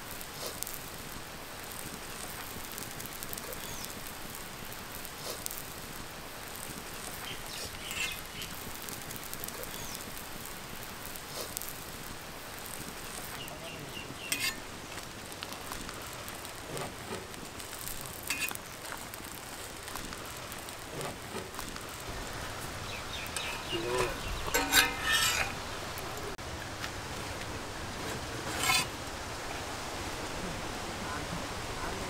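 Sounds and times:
omelette sizzling on griddle: 0.0 - 29.8
metal spatula clicking on griddle: 14.3 - 14.6, 18.2 - 18.6, 23.2 - 25.6.

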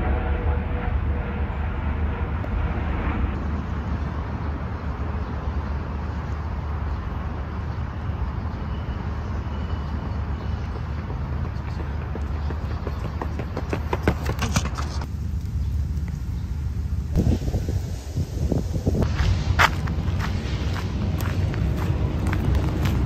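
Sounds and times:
distant traffic rumble: 0.0 - 23.0
running footsteps on pavement: 9.4 - 15.1, 19.0 - 23.0
wind in microphone: 17.1 - 23.0.

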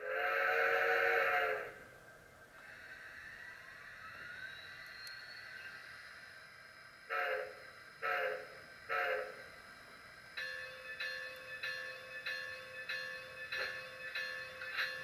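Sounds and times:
steam locomotive whistle blasts: 0.0 - 1.8, 7.1 - 9.5
locomotive bell ringing: 10.3 - 15.0.

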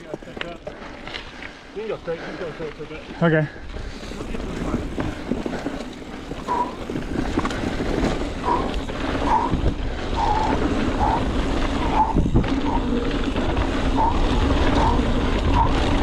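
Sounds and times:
bike tyre and trail noise: 0.0 - 16.0
wind buffeting microphone: 3.6 - 16.0.

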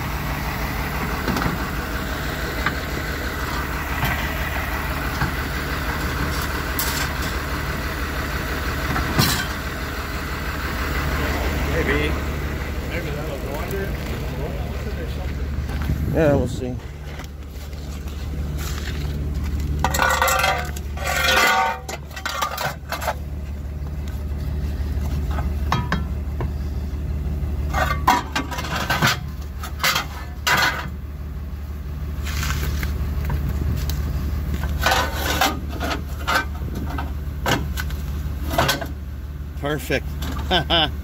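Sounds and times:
low engine hum: 0.0 - 41.0
metal clanking and scraping: 1.0 - 7.7, 8.8 - 9.8, 12.9 - 26.8, 27.6 - 31.0, 32.2 - 39.0.

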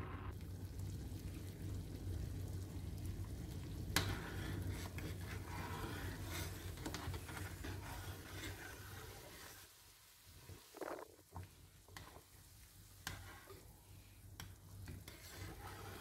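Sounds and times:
sauce bubbling in a pot: 0.3 - 16.0
metal spoon stirring: 4.0 - 9.6, 14.8 - 16.0.

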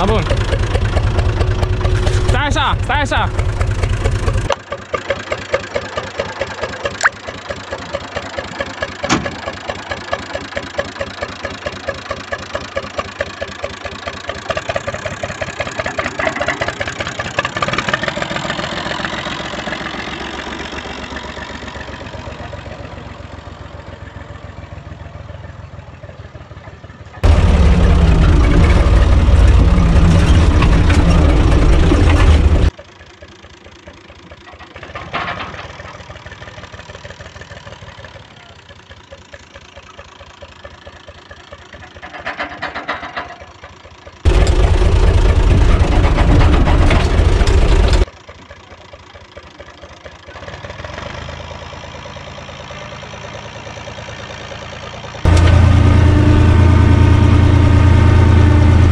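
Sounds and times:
loud deep rumble: 0.0 - 4.5, 27.2 - 32.7, 44.3 - 48.0, 55.3 - 58.9
tractor diesel engine clattering: 0.0 - 58.9.

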